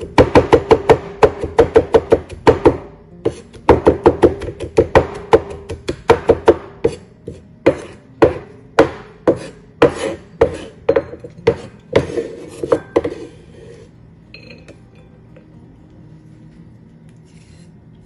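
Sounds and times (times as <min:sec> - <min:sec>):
knife chopping on wooden board: 0:00.0 - 0:13.3.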